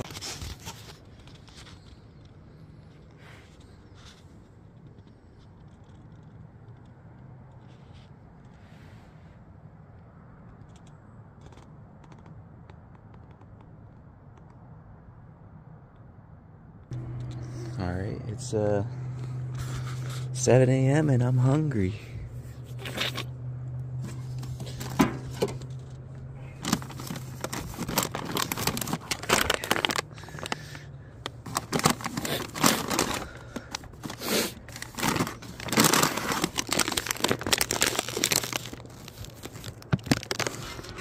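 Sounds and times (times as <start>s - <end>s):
packaging crinkling and tearing: 0.0s - 2.0s, 24.0s - 41.0s
low hum: 14.7s - 41.0s.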